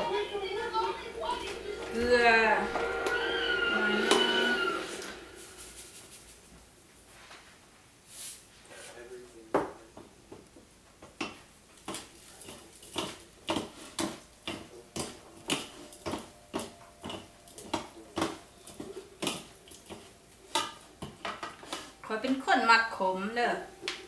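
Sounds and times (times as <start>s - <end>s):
wooden spoons clacking in bowl: 11.2s - 22.7s.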